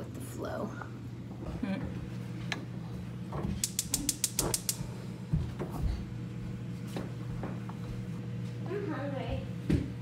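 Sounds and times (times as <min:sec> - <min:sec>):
steady low hum: 0:00.0 - 0:10.0
rapid sharp clicks: 0:03.6 - 0:04.8.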